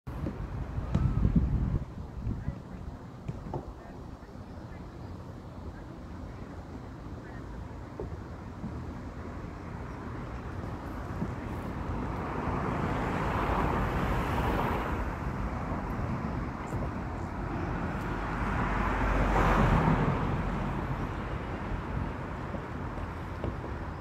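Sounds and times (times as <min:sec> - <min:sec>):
cars passing close by: 0:09.2 - 0:24.0.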